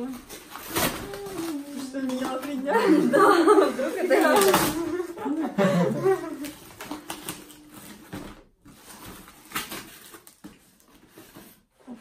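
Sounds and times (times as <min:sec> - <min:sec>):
cardboard box rustling and tearing: 0:00.0 - 0:02.7, 0:06.2 - 0:11.7.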